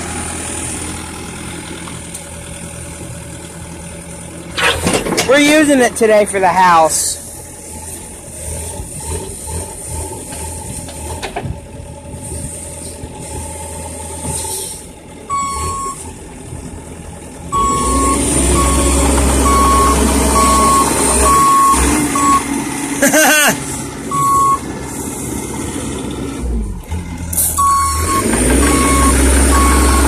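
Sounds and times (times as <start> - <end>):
diesel engine running: 0.0 - 30.0
travel alarm beeping: 15.3 - 16.0, 17.5 - 22.5, 24.1 - 24.6, 27.6 - 30.0.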